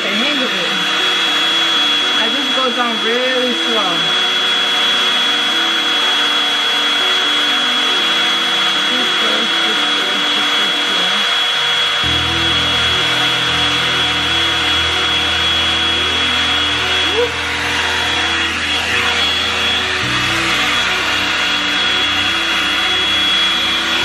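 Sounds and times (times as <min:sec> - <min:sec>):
background music: 0:00.0 - 0:24.0
hot air brush motor whine: 0:00.0 - 0:24.0
low bass: 0:12.0 - 0:24.0.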